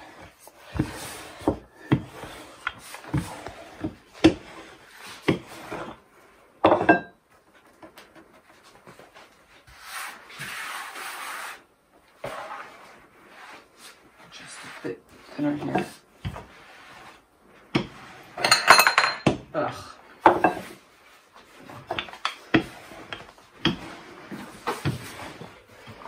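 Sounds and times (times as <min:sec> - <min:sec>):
rolling pin rolling dough: 0:00.0 - 0:26.0
hand rubbing flour on board: 0:08.6 - 0:18.4, 0:20.6 - 0:26.0.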